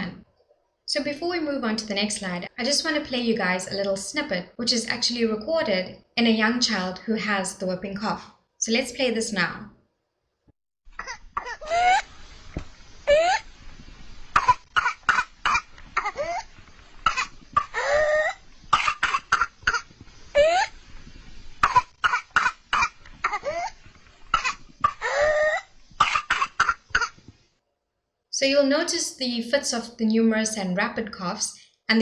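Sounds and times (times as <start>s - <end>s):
child coughing rapidly: 14.4s - 16.5s, 17.1s - 20.7s, 21.6s - 27.2s.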